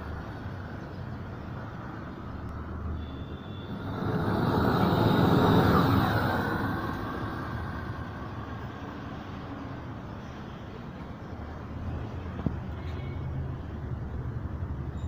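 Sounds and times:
gas torch flame rushing: 0:03.6 - 0:08.4.

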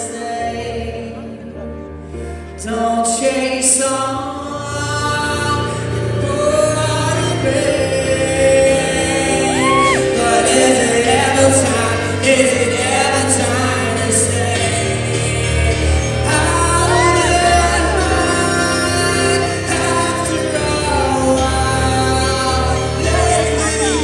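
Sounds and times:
man singing: 0:00.0 - 0:01.7, 0:02.4 - 0:24.0
crowd shouting: 0:09.4 - 0:10.1.

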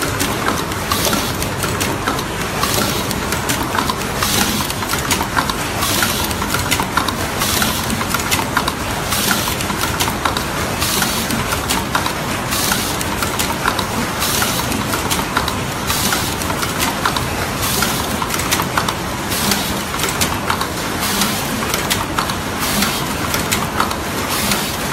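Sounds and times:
machine clattering: 0:00.0 - 0:24.9.

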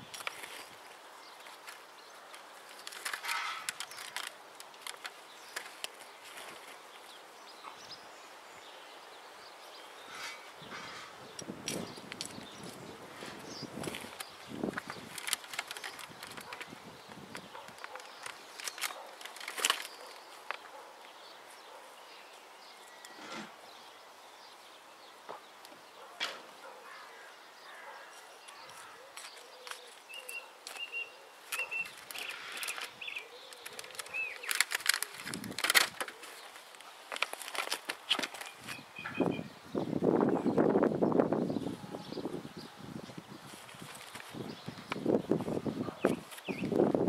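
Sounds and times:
hands rustling in soil: 0:00.0 - 0:07.6, 0:09.7 - 0:23.6, 0:28.1 - 0:39.0, 0:43.0 - 0:47.0
stones scraping and clicking: 0:01.4 - 0:06.8, 0:31.5 - 0:38.8.

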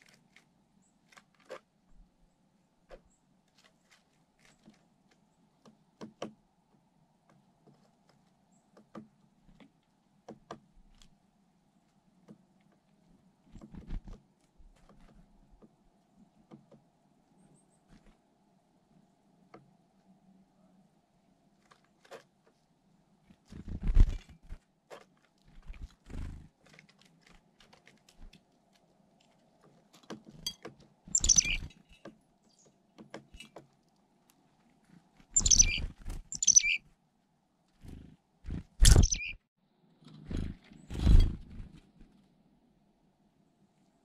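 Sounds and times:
rustling: 0:02.8 - 0:05.6, 0:21.5 - 0:32.2
chickadees chirping: 0:31.1 - 0:31.7, 0:35.4 - 0:36.8, 0:38.8 - 0:39.4.

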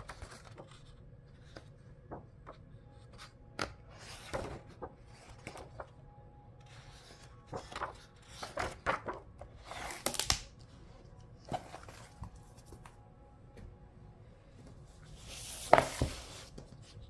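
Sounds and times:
paper pages turning: 0:00.0 - 0:05.9, 0:06.6 - 0:10.8, 0:11.4 - 0:13.0, 0:15.1 - 0:17.0.

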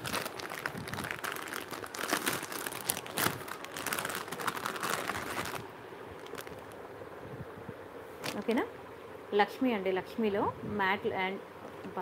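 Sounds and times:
plastic packets crinkling: 0:00.0 - 0:06.8, 0:08.2 - 0:08.6.

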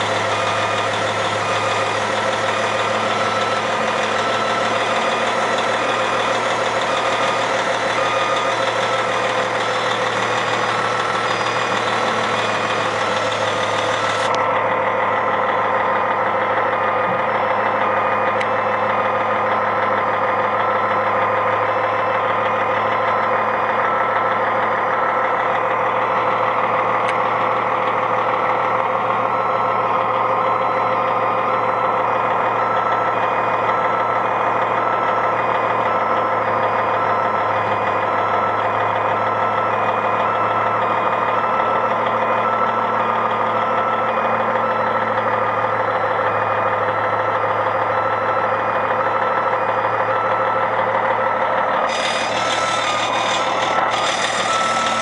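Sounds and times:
beeping alarm: 0:00.0 - 0:14.4, 0:45.9 - 0:55.0
grinder engine running: 0:00.0 - 0:55.0.

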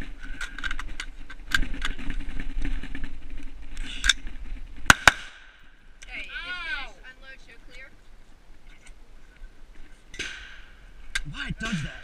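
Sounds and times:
steady background noise: 0:00.0 - 0:12.0
rifle shots: 0:04.9 - 0:05.6.

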